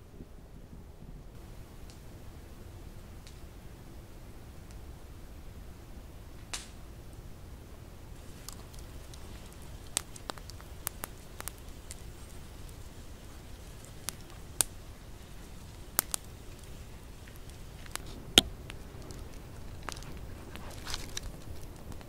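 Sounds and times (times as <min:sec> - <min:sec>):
campfire crackling: 0:01.3 - 0:22.0.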